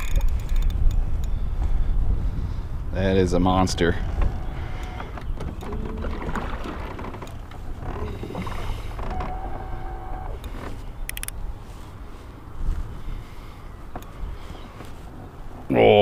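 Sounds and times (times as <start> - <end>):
sharp clicks: 0.0 - 1.4, 10.2 - 11.4
water moving around boat: 3.6 - 15.8.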